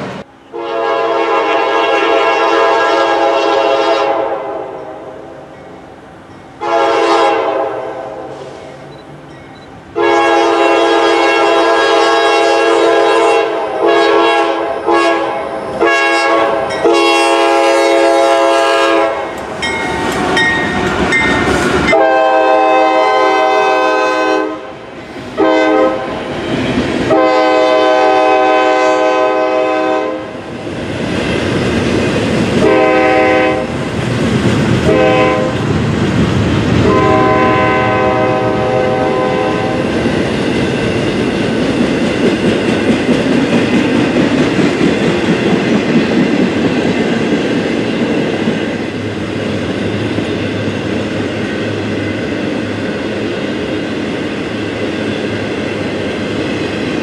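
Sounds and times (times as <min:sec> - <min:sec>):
locomotive air horn blasts: 0:00.5 - 0:05.1, 0:06.6 - 0:08.8, 0:10.0 - 0:19.3, 0:21.9 - 0:24.8, 0:25.4 - 0:26.2, 0:27.1 - 0:30.4, 0:32.6 - 0:33.7, 0:34.9 - 0:35.6, 0:36.8 - 0:39.9
train wheels on rails: 0:04.8 - 0:57.0.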